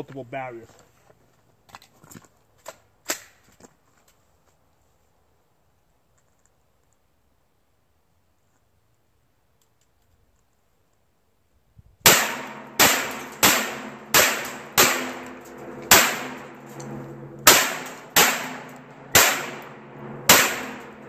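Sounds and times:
rifle shots with echo: 12.1 - 16.6, 17.4 - 21.0.

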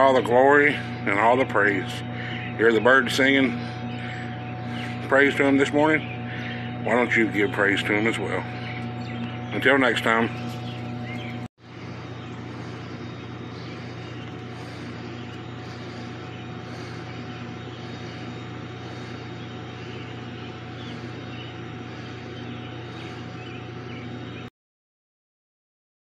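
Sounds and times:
faint high whine: 0.0 - 24.5
machinery hum: 0.0 - 24.5.

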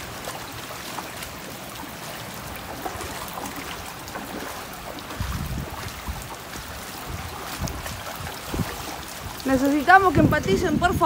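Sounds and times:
floodwater flowing and lapping: 0.0 - 11.0.

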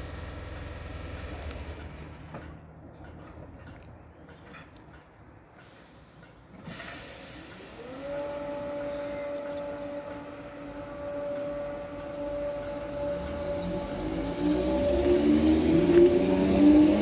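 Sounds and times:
air hiss burst: 5.6 - 8.0
electric train motor whine: 7.4 - 17.0.

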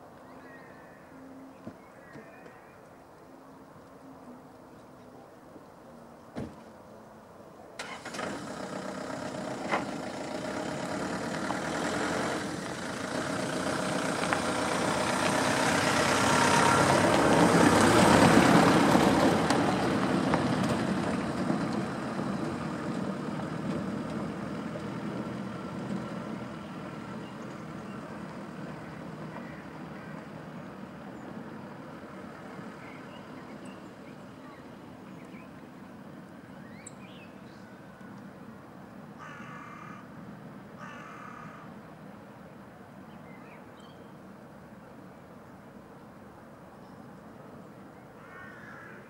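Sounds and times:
motor engine passing by: 7.8 - 35.2.

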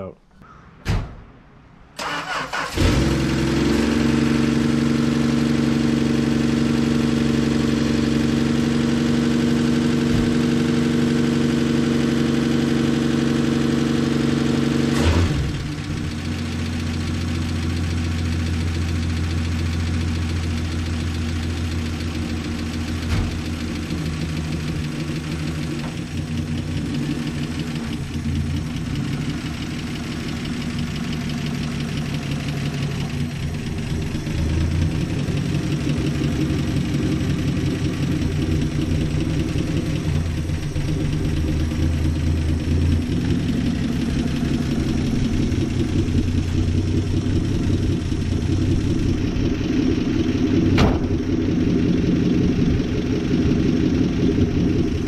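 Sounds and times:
car engine cranking and starting: 1.9 - 55.0
car engine running: 2.0 - 55.0.

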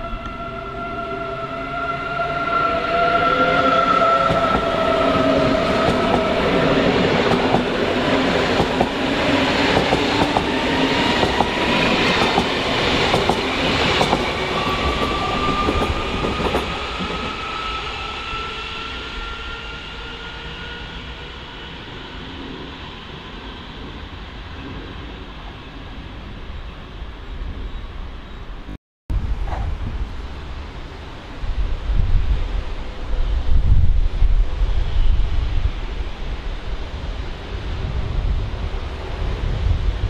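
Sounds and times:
electric train traction whine: 0.0 - 26.1.

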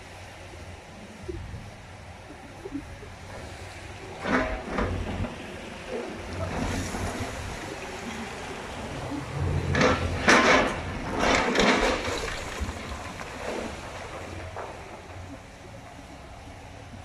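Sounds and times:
concrete chunks crashing down: 9.8 - 15.3.

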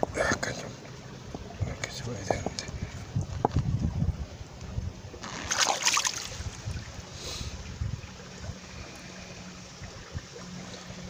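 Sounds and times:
creek water running over boulders: 0.0 - 11.0
burst of noise: 5.2 - 6.0.

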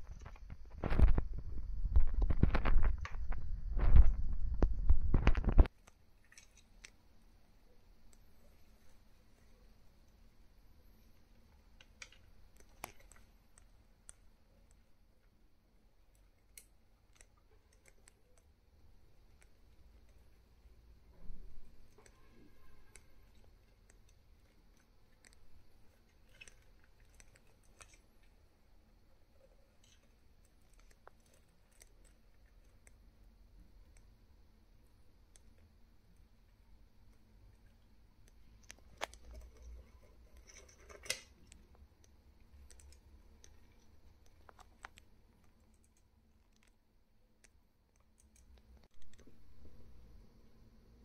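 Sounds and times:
faint sharp clicks and scratches: 0.0 - 51.0
faint scratches: 19.2 - 33.1.

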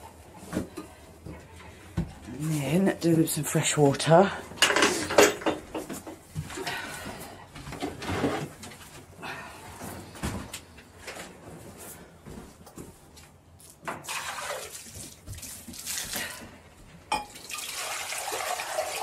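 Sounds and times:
knocks and rustles of handling: 0.1 - 3.1, 4.6 - 14.0
water pouring into a bowl: 14.0 - 16.4, 17.3 - 19.0.

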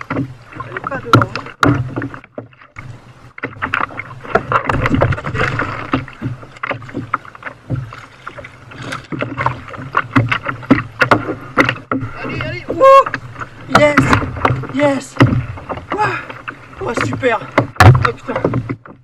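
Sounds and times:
water slapping against kayak: 0.0 - 19.0
knocks and clicks: 1.0 - 2.6, 3.4 - 12.5, 16.9 - 19.0.

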